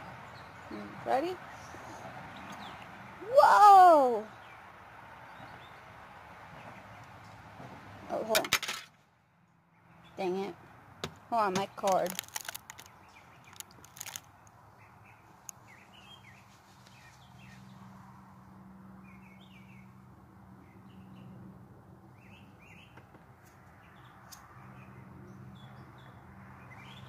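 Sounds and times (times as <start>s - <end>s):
small birds chirping: 0.0s - 3.0s, 4.2s - 7.4s, 11.4s - 17.9s, 19.0s - 20.0s, 22.1s - 27.0s.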